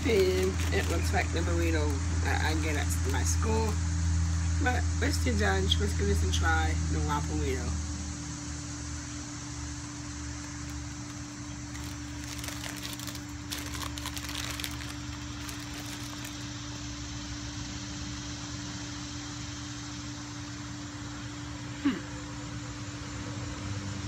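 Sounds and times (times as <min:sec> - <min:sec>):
wrapper crinkling while eating: 0:00.0 - 0:03.8, 0:10.4 - 0:16.9
machine hum and hiss: 0:00.0 - 0:24.0.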